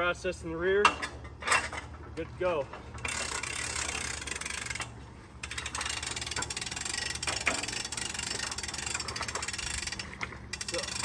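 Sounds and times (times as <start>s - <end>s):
winch ratchet clicking: 3.0s - 11.0s.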